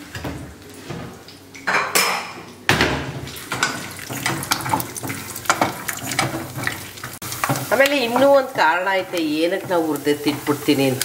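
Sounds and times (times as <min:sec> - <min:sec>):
spoon scraping and knocking cookware: 0:03.5 - 0:06.8.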